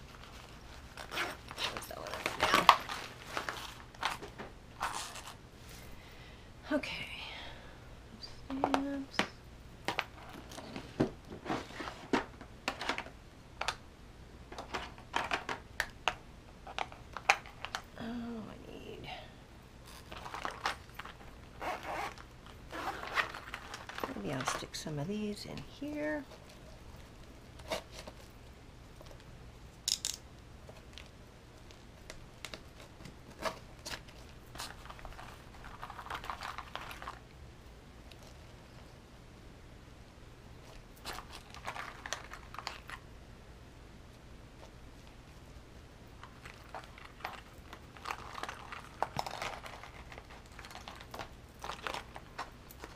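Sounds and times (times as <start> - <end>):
crinkling rustle: 0.0 - 6.0, 16.6 - 18.0, 19.8 - 29.4, 30.4 - 39.0, 40.5 - 43.1, 44.0 - 52.9
small items handled into fabric pockets: 0.0 - 6.0, 19.8 - 29.3.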